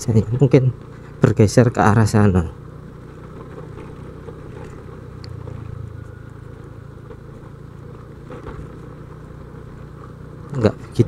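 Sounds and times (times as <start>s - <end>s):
motorcycle engine and road rumble: 0.0s - 11.0s
faint clicks: 3.4s - 5.6s.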